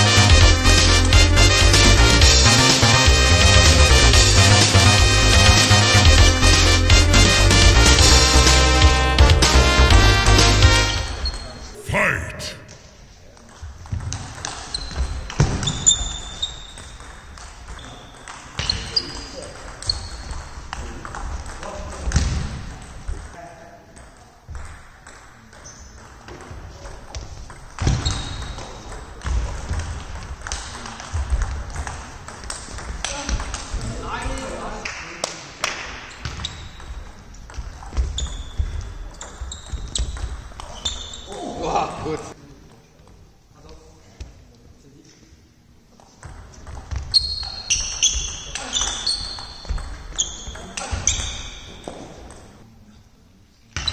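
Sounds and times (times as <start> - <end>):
shoes squeaking on floor: 14.7 - 16.9, 37.9 - 41.4, 46.9 - 52.1.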